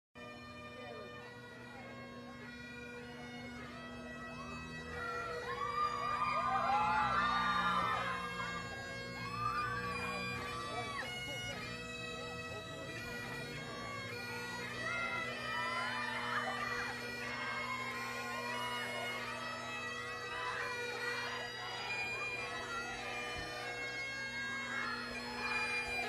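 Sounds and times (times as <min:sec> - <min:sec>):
bagpipe drones and melody: 0:00.2 - 0:26.0.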